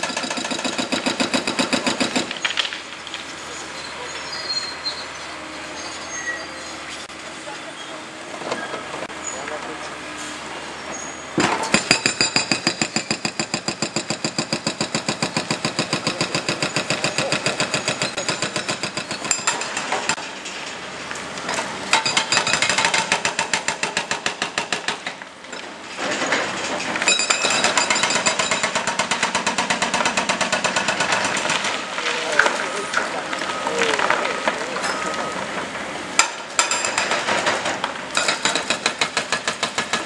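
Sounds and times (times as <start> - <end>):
hydraulic breaker hammering stone: 0.0 - 2.8, 11.4 - 20.2, 36.2 - 40.0.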